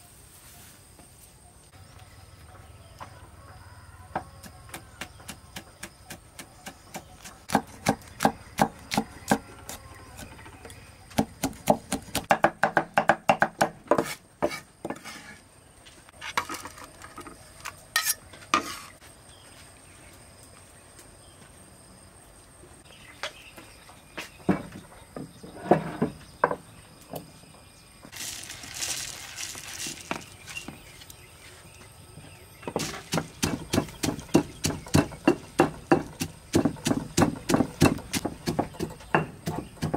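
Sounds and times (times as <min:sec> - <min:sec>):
cleaver chopping on wooden block: 0:04.4 - 0:10.3, 0:11.2 - 0:14.6, 0:32.8 - 0:39.9.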